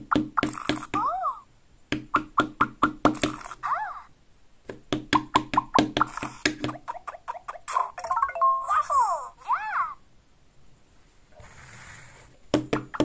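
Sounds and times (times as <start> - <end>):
plastic toy knocking on table: 1.9 - 3.5, 4.7 - 6.8, 12.5 - 13.0.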